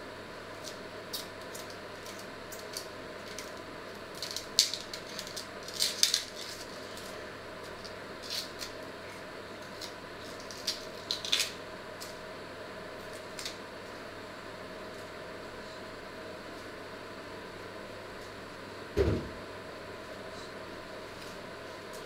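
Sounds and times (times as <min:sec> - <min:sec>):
steady low hum: 0:00.0 - 0:22.0
onion skins crackling: 0:00.5 - 0:12.2.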